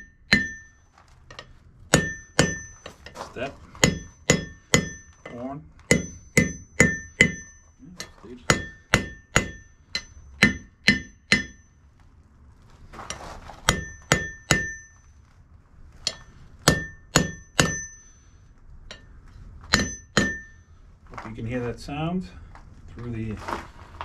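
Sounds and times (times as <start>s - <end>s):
hammer striking anvil: 0.0s - 0.8s, 1.9s - 3.1s, 3.8s - 11.7s, 13.7s - 15.0s, 16.0s - 18.1s, 19.7s - 20.6s.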